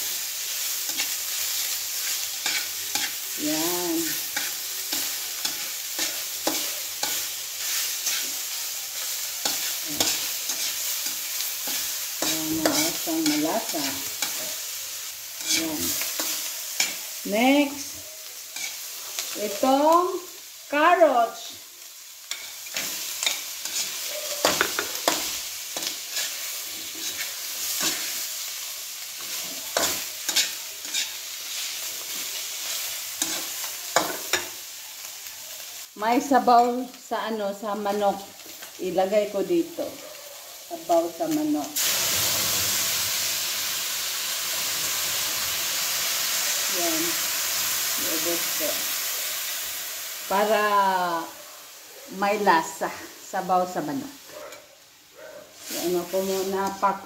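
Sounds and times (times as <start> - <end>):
chicken sizzling in oil: 0.0 - 57.0
spatula scraping and knocking pan: 9.4 - 14.6, 22.3 - 28.2.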